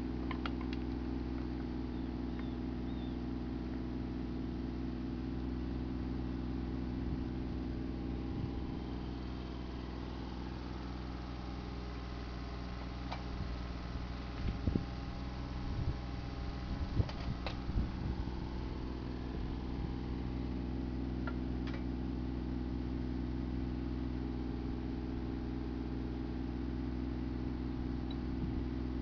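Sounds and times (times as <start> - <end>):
excavator diesel engine running: 0.0 - 29.0.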